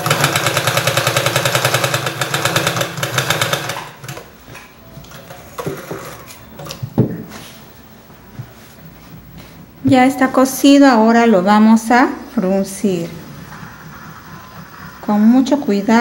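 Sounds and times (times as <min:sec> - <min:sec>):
sewing machine stitching: 0:00.0 - 0:04.3.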